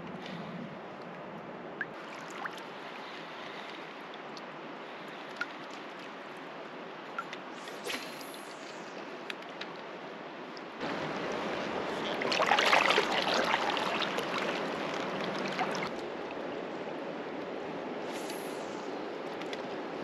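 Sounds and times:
paddle splashing water: 10.8s - 16.4s
river current rushing: 10.8s - 17.2s.

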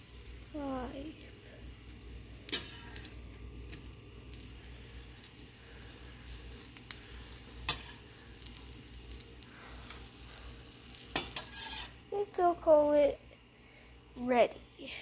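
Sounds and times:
egg sizzling in a pan: 0.0s - 13.0s.

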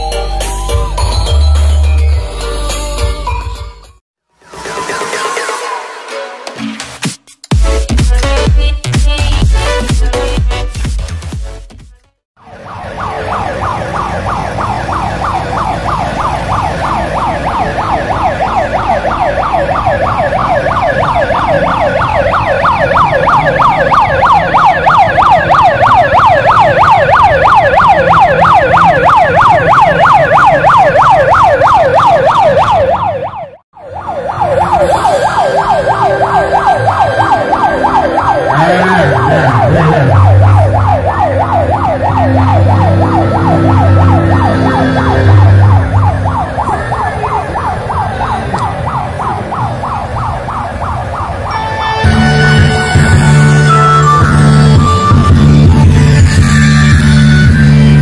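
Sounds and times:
police siren wailing: 12.4s - 58.0s.

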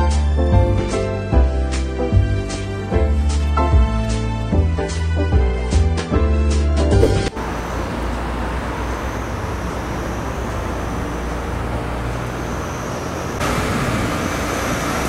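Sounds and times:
car road and engine rumble: 7.0s - 15.0s.

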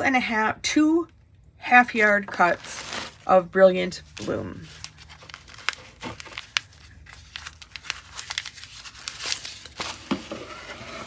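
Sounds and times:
tissue paper crinkling: 2.3s - 10.8s.

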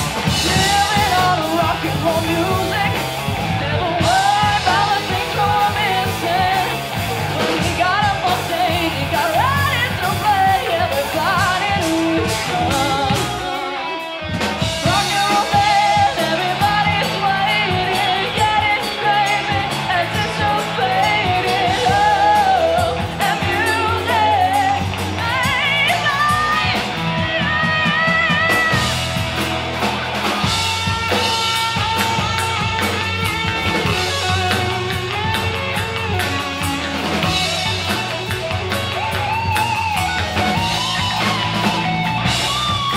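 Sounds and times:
drum kit: 0.0s - 42.9s
electric guitars: 0.0s - 42.9s
woman singing: 0.2s - 13.9s, 14.8s - 29.2s.

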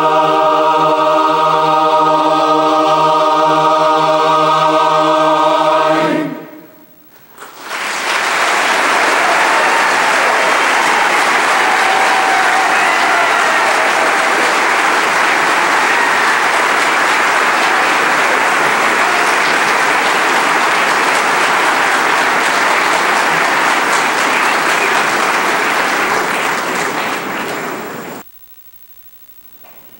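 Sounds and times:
audience applauding: 7.1s - 28.2s.

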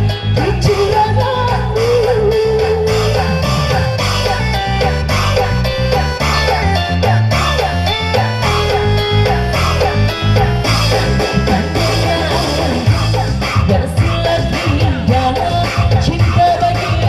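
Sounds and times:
women singing into microphones: 0.0s - 4.5s, 11.2s - 17.0s
bass line: 0.0s - 17.0s
keyboard: 0.0s - 17.0s
steady beat: 0.0s - 17.0s.

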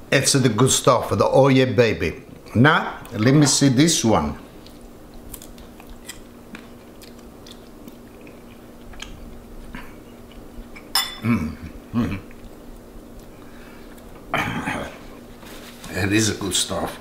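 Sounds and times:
chewing: 4.5s - 10.9s, 12.1s - 14.2s.

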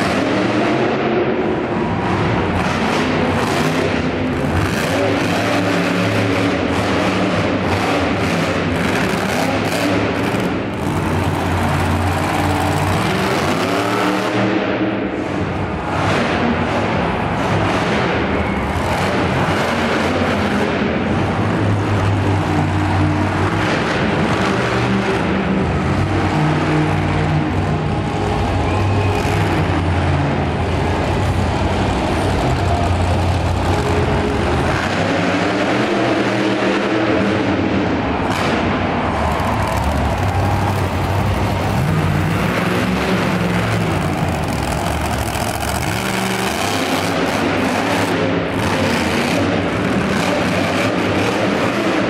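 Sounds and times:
monster truck engine roaring: 0.0s - 52.0s.

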